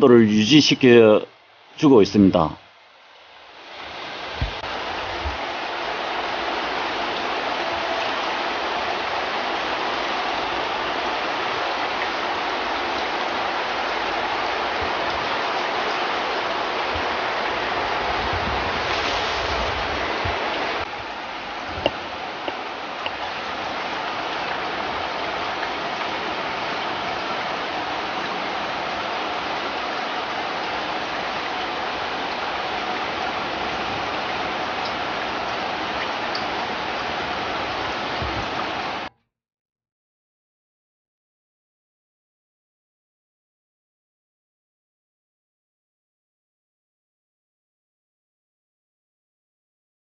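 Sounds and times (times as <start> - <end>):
water rushing down plastic: 3.2 - 39.1.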